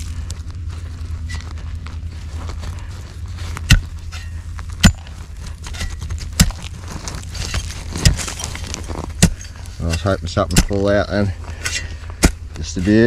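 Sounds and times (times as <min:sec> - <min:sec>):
low rumble: 0:00.0 - 0:13.0
digging tool striking dirt: 0:03.5 - 0:13.0.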